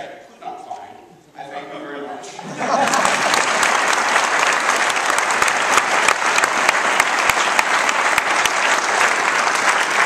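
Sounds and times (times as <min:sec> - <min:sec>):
large audience clapping: 0:02.6 - 0:10.0.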